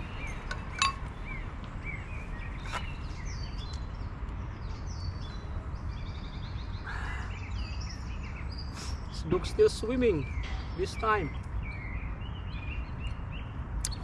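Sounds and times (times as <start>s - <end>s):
songbirds chirping and trilling: 0.0s - 14.0s
tableware clink: 0.7s - 1.0s.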